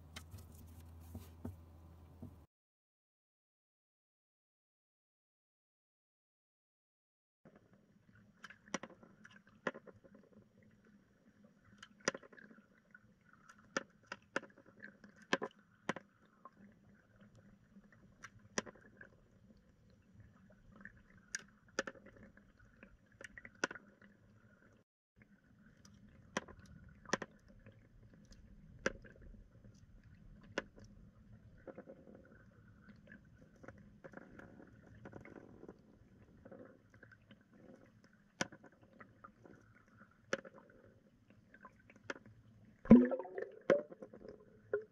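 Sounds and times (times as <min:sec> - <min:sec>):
underwater low hum: 0:07.5 - 0:44.9
sharp underwater clicks: 0:42.9 - 0:44.9.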